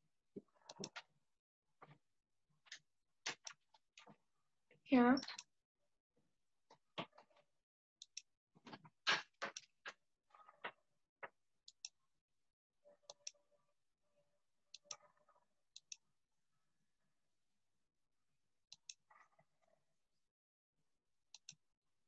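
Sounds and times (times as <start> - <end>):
computer mouse buttons clicking: 0.7 - 1.0, 15.8 - 16.0, 18.7 - 19.1, 21.4 - 21.6.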